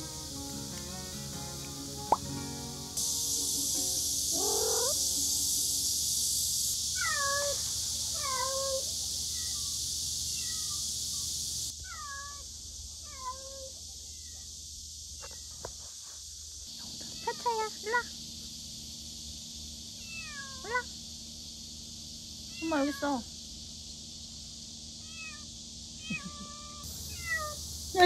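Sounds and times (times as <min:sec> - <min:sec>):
steady high hiss: 0:00.0 - 0:28.0
kitten meowing: 0:04.4 - 0:05.0, 0:07.0 - 0:07.6, 0:10.3 - 0:10.8, 0:26.0 - 0:27.6.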